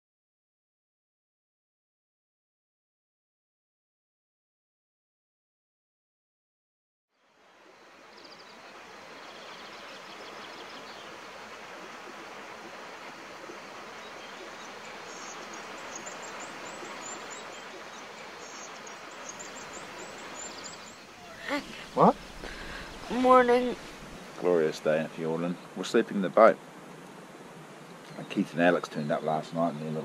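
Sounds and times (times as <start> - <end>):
steady rushing hiss: 7.2 - 30.0.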